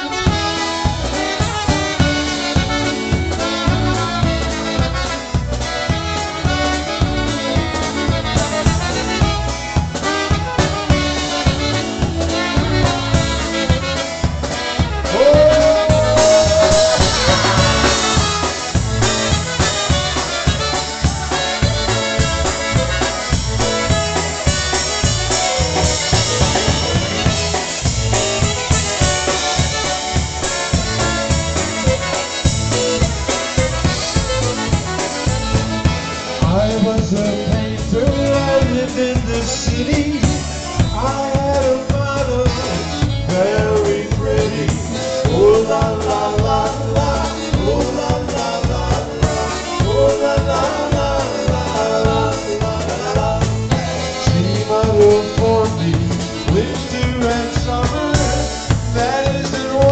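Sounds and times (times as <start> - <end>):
concertina melody: 0.0 - 41.5
drum kit polka beat: 0.0 - 59.9
polka band playing: 0.0 - 59.9.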